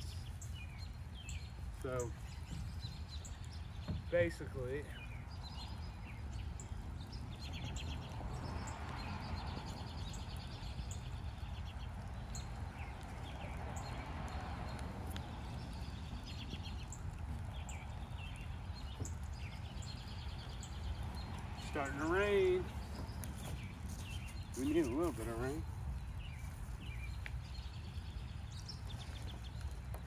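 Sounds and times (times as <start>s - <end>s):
small birds chirping and trilling: 0.0s - 30.0s
faint clicks: 11.9s - 20.0s.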